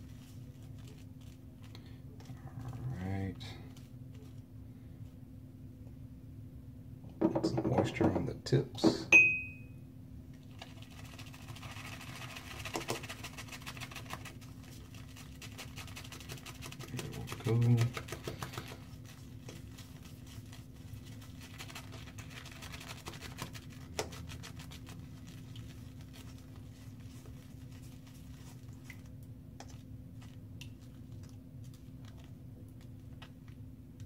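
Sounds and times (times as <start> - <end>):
shaving brush swirling on soap: 10.4 - 33.4.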